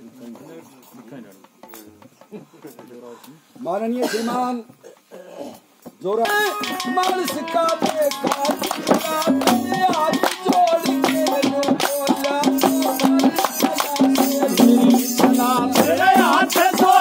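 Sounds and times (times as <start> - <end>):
rattling percussion beat: 6.2 - 17.0.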